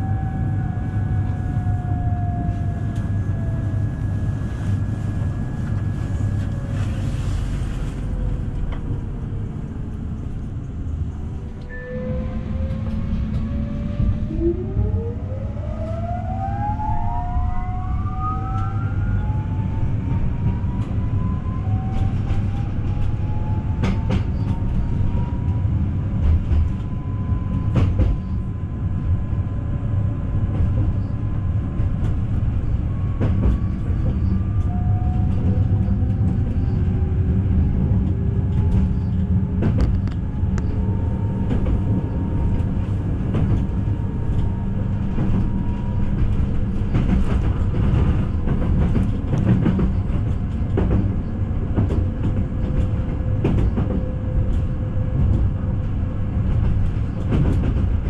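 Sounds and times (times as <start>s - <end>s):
train rumble inside carriage: 0.0s - 58.0s
faint rising whines: 11.2s - 20.0s.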